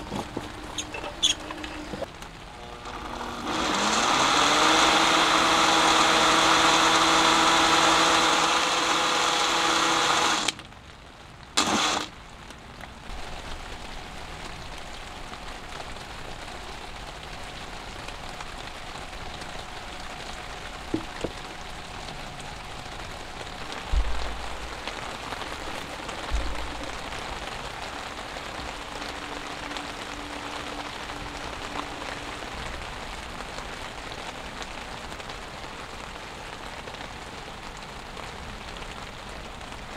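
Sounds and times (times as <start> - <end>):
steady rain: 0.0 - 39.9
electric blender running: 1.5 - 10.6, 11.6 - 12.1.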